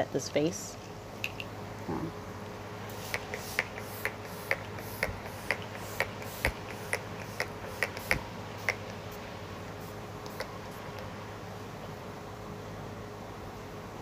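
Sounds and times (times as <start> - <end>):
spray bottle spritzing: 2.9 - 8.9.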